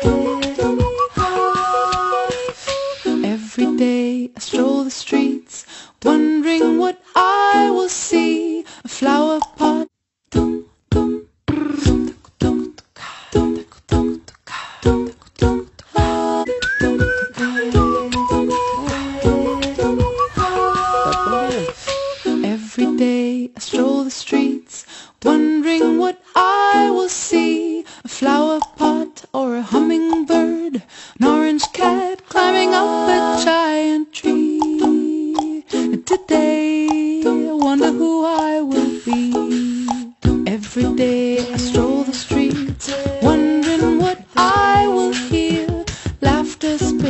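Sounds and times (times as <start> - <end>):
light musical accompaniment: 0.0 - 3.3, 14.9 - 22.6
woman singing: 0.0 - 9.9, 14.8 - 47.0.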